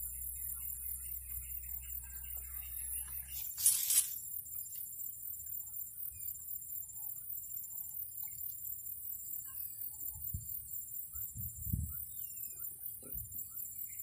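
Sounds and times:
insects chirring: 0.0s - 14.0s
rustling swish: 3.3s - 4.2s.

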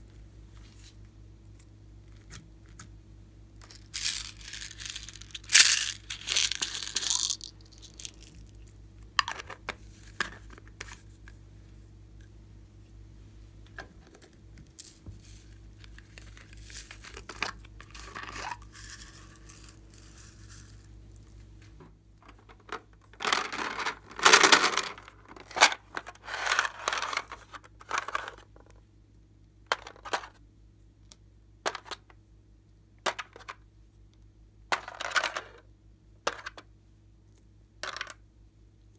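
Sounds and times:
crinkly plastic scraping: 22.2s - 28.5s.

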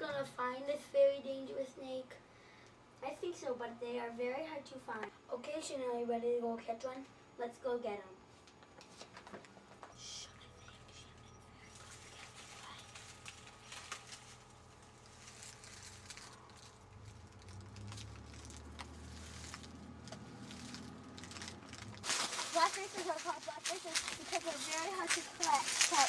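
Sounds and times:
rustling and crackling leaves: 11.7s - 26.0s.

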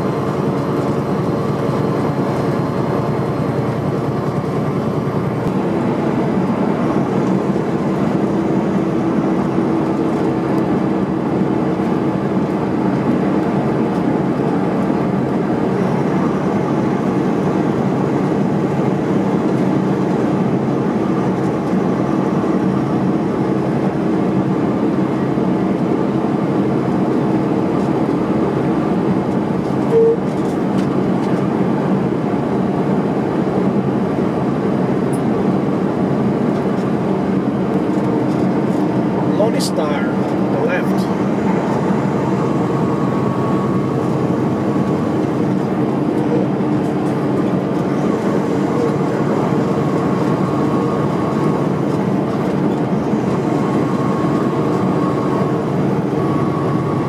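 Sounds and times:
constant low hum: 0.0s - 57.0s
road noise: 0.0s - 57.0s
truck diesel engine drone: 0.0s - 57.0s
brief short tone: 29.8s - 30.4s.

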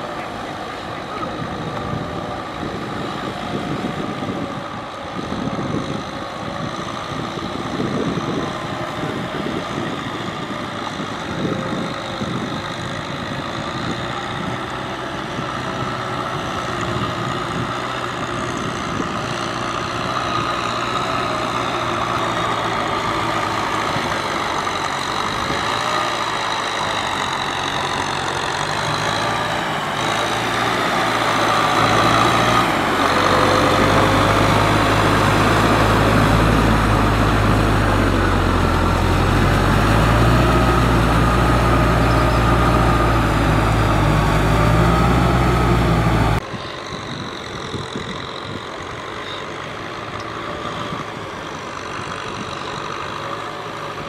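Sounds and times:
diesel tractor engine running: 0.0s - 54.0s.

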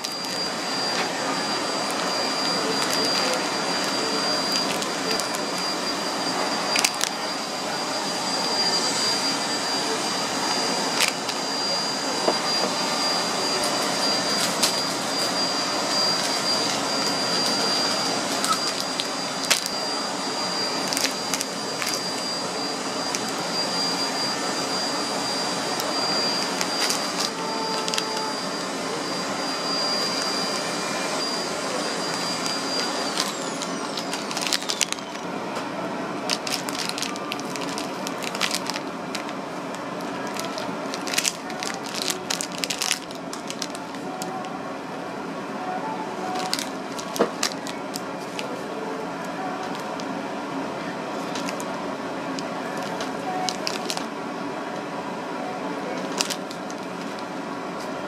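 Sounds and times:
machine hum and whine: 0.0s - 58.0s
sharp crinkles or clicks: 20.8s - 22.0s, 26.5s - 28.2s, 33.1s - 35.2s, 36.3s - 39.3s, 40.2s - 44.0s, 46.4s - 48.5s, 51.3s - 51.6s, 52.8s - 54.1s, 56.0s - 57.2s.

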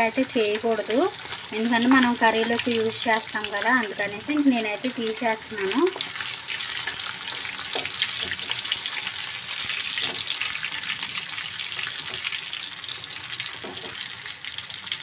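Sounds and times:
fish sizzling in hot oil: 0.0s - 15.0s.

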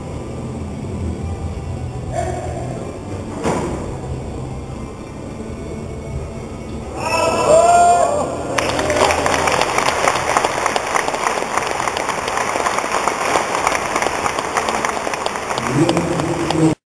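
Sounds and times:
audience applauding: 8.5s - 16.8s.

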